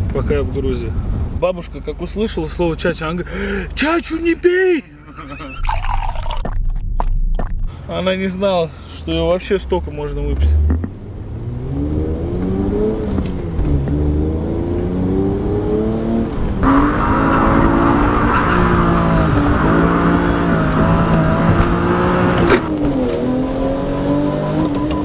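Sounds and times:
car engine revving and accelerating: 9.7 - 25.0
tyre squeal: 16.9 - 19.4.

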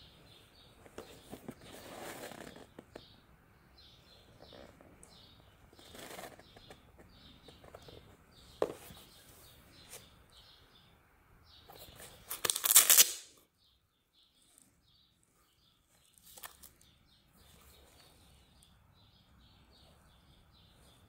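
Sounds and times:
shoe upper rustling and creasing: 0.8 - 3.1, 4.3 - 10.1
hook-and-loop strap ripping open: 12.3 - 13.4.

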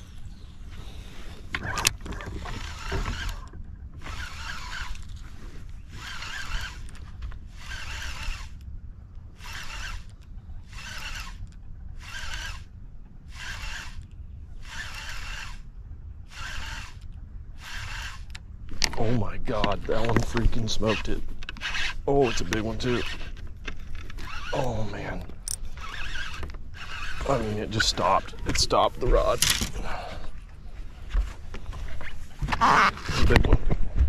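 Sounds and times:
fishing reel gears whirring: 2.4 - 5.2, 5.8 - 8.6, 9.3 - 12.7, 13.3 - 15.7, 16.3 - 18.4, 20.5 - 29.6.

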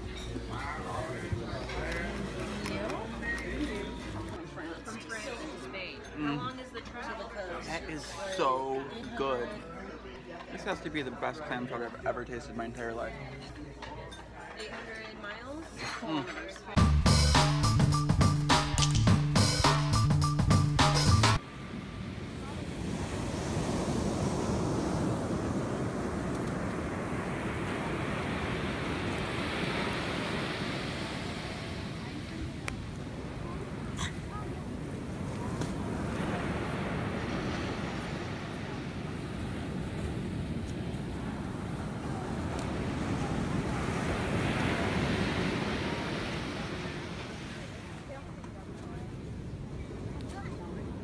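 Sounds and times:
ocean surf on a beach: 21.4 - 51.0.

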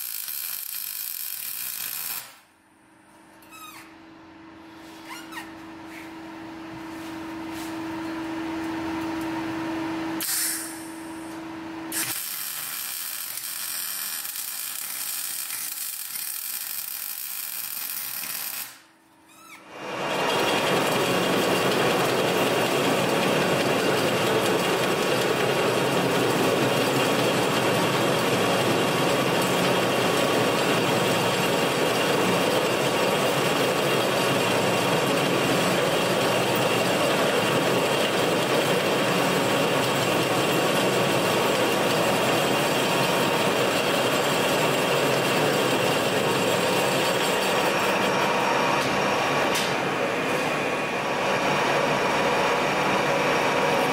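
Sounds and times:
mig welding: 0.0 - 2.6, 10.2 - 18.9, 20.3 - 48.4
metal lathe cutting steel tube: 41.8 - 48.8.

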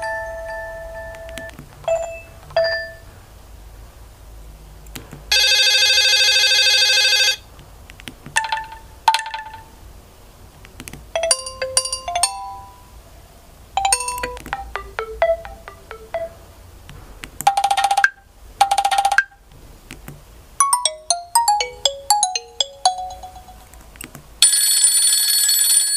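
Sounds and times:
buzzy phone ringtone: 5.3 - 7.4, 11.2 - 13.0, 13.8 - 16.5, 20.6 - 23.7, 24.4 - 25.9
short chiming ringtone melodies: 11.2 - 13.0, 13.8 - 16.4, 20.6 - 23.7.

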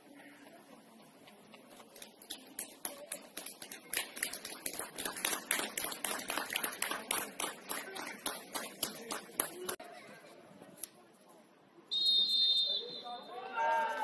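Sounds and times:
group hand clapping: 2.0 - 9.8.

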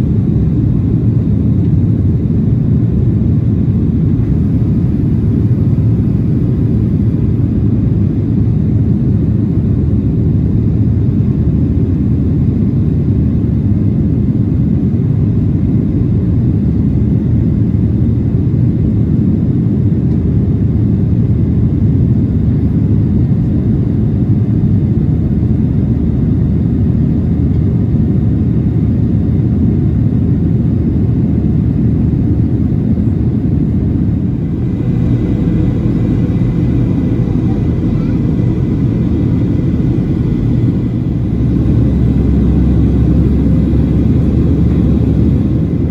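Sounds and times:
jet engines rumbling: 0.0 - 45.9
air rushing past aircraft: 24.2 - 45.9.

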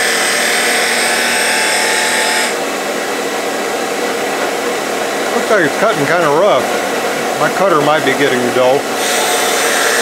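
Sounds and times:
lathe humming: 0.0 - 10.0
lathe cutter rasping into wood: 7.7 - 10.0.

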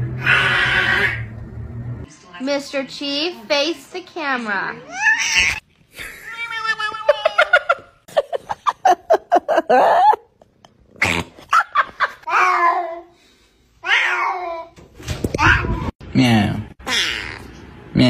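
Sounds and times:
person laughing: 5.9 - 12.2.

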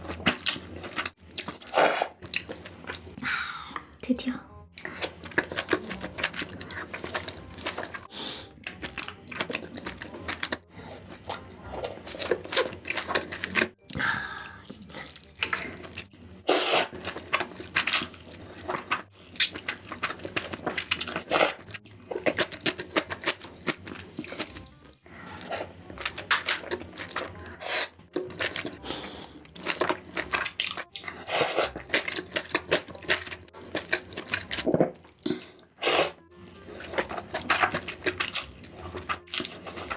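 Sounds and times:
noodle soup slurping: 0.8 - 2.6, 15.1 - 21.7, 22.3 - 32.9, 35.2 - 39.9.

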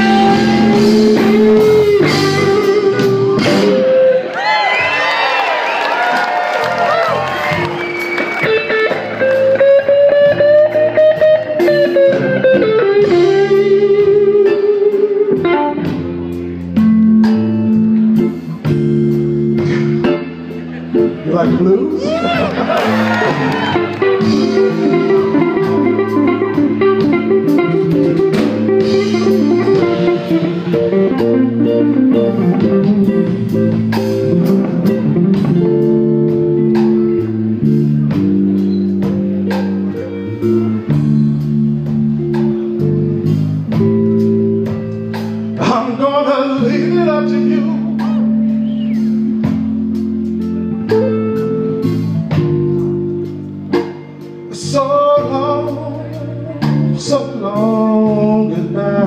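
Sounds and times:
walking bass line: 0.0 - 4.3, 6.8 - 59.0
blues band playing: 0.0 - 59.0
drums: 0.0 - 59.0
guitar: 0.0 - 59.0.

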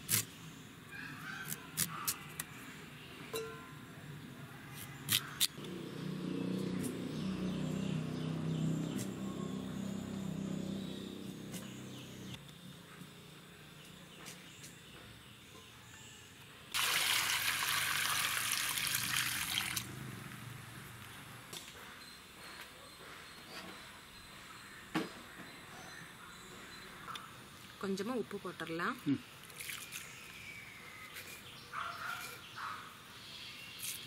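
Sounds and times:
water pouring into a steel bowl: 16.8 - 19.9.

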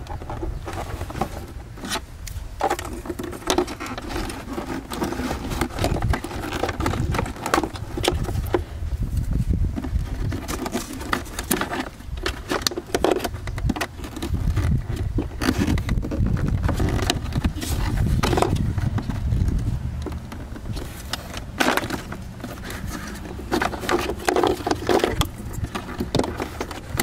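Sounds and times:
plastic clicks and rattles: 0.0 - 8.7, 9.8 - 27.0
steady low rumble: 14.3 - 24.2.

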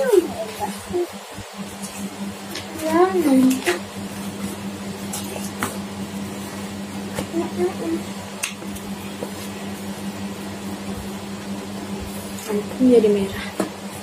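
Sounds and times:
child's voice murmuring: 0.0 - 1.2
low electrical hum: 0.0 - 14.0.

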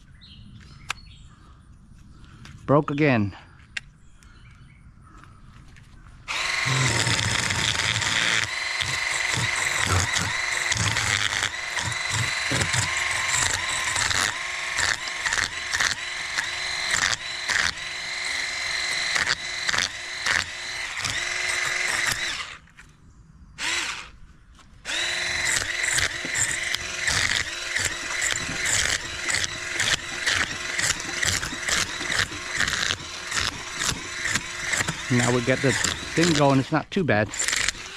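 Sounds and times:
scaler rasping over fish scales: 6.3 - 17.8, 24.9 - 36.8
electric fish scaler motor whine: 6.3 - 22.7, 23.6 - 24.1, 24.9 - 36.7.

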